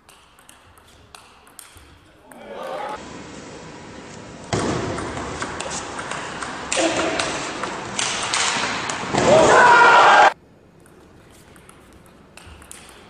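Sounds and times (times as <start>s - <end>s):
crowd noise in a hall: 2.1s - 10.4s
loud shout: 9.2s - 10.4s
table tennis ball clicking: 10.8s - 13.0s.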